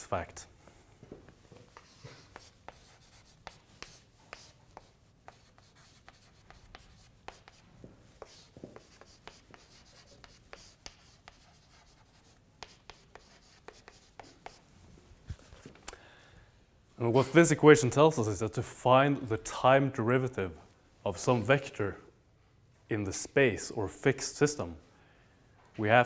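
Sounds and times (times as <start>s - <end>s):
chalk tapping and scraping on blackboard: 1.5s - 14.7s.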